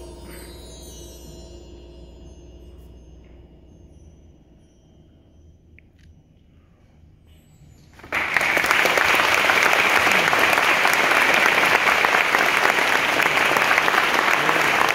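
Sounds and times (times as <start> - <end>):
audience applause: 8.0 - 14.9.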